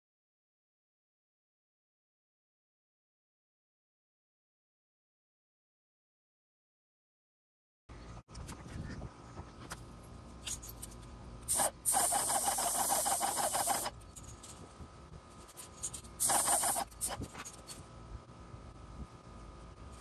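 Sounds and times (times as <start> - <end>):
paint sprayer gun hissing: 11.5 - 14.0, 15.8 - 17.4.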